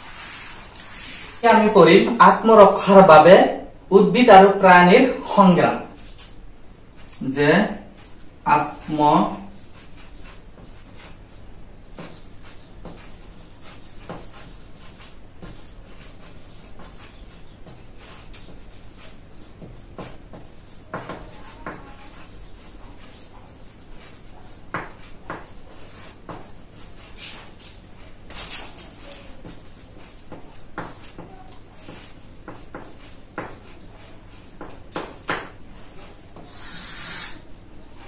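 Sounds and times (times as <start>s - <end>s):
chalk scratching on chalkboard: 0.0s - 1.4s, 8.6s - 38.0s
chalk taps: 9.6s - 11.2s, 11.9s - 37.4s.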